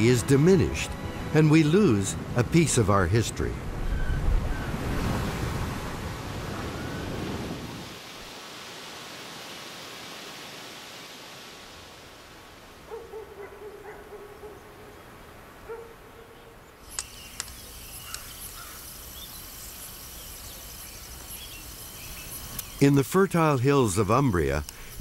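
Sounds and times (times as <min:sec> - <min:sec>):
soft hiss: 0:16.6 - 0:25.0
insect trill: 0:16.8 - 0:25.0
sharp clicks: 0:16.9 - 0:18.3.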